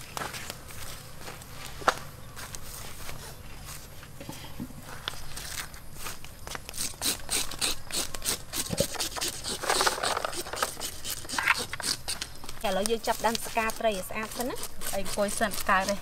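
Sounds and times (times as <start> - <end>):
knife scraping fish scales: 6.7 - 12.4, 13.3 - 16.0.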